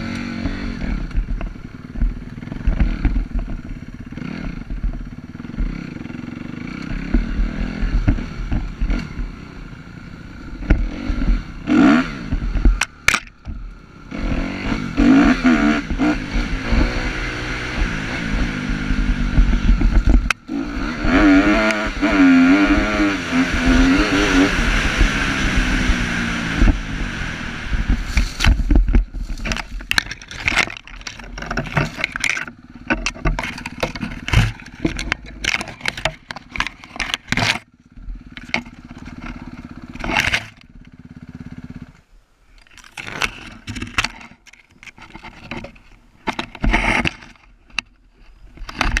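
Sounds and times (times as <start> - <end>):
dirt bike engine running: 0.0 - 49.0
branches crashing against bike: 27.7 - 41.6, 42.5 - 49.0.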